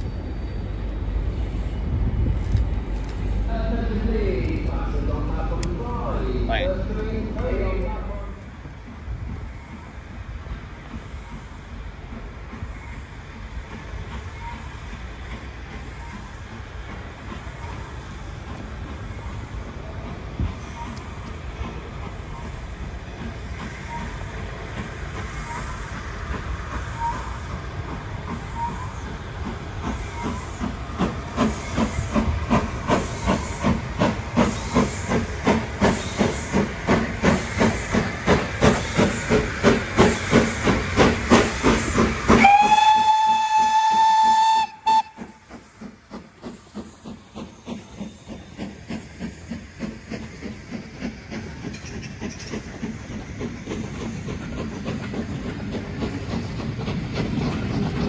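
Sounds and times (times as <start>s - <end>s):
steam locomotive exhaust beats: 0.0s - 58.0s
steam whistle blast: 42.4s - 45.4s.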